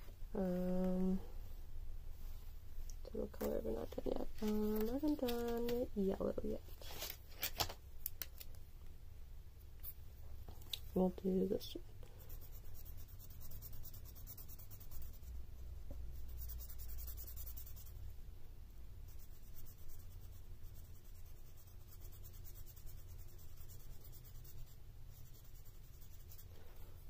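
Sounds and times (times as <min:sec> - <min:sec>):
low steady hum: 0:00.0 - 0:27.0
marker scratching on paper: 0:12.2 - 0:15.4, 0:16.1 - 0:18.0, 0:19.0 - 0:26.6.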